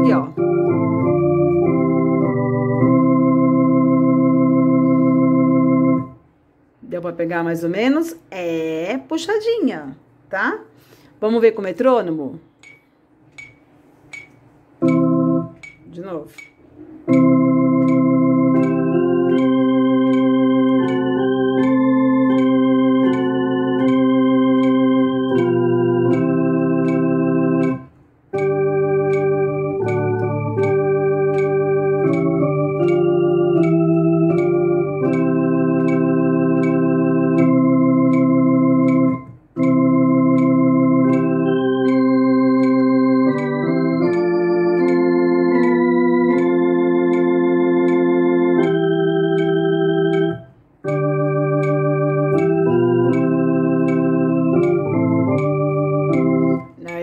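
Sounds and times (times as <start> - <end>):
electronic organ playing a hymn: 0.0 - 6.3, 14.8 - 15.8, 17.0 - 57.0
metronome clicking: 12.4 - 57.0.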